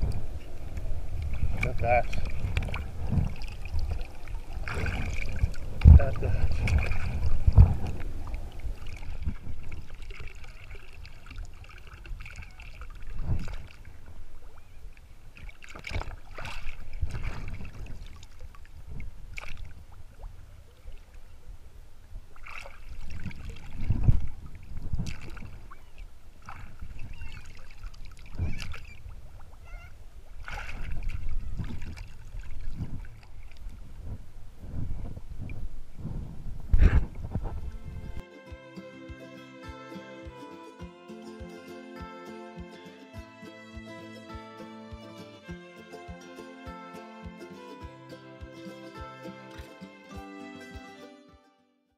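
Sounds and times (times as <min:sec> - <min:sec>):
water splashes: 0:00.0 - 0:35.8
water lapping and sloshing: 0:00.0 - 0:38.2.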